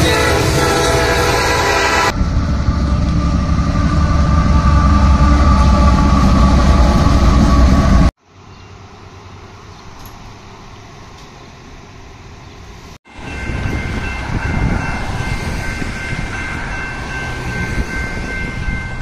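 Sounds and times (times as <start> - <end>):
loud low rumble: 0.0 - 8.1
crossing warning bell ringing: 0.0 - 8.8, 13.1 - 19.0.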